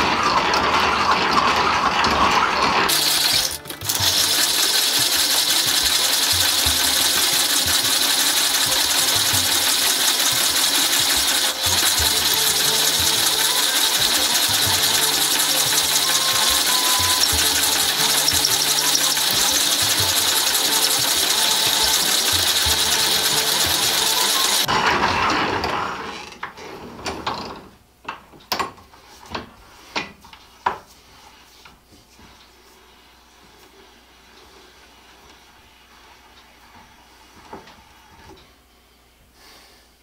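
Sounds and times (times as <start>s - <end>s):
drill press gears whirring: 0.0s - 26.6s.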